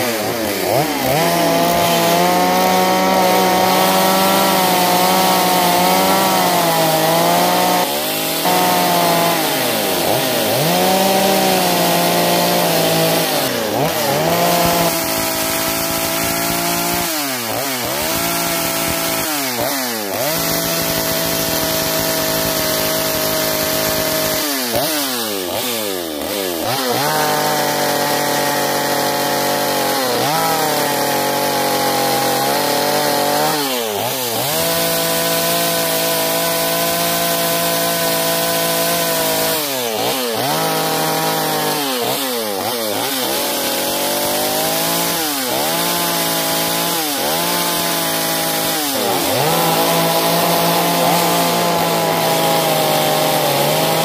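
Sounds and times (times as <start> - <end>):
chainsaw cutting wood: 0.0 - 54.0.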